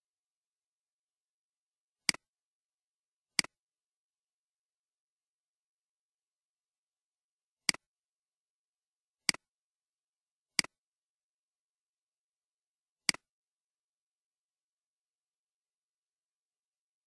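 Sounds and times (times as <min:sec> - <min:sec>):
computer mouse clicks: 0:10.6 - 0:10.8.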